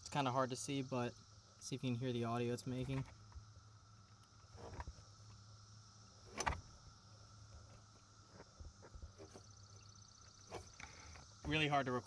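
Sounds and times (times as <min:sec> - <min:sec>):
compressor grinding and scraping: 0:04.4 - 0:05.1.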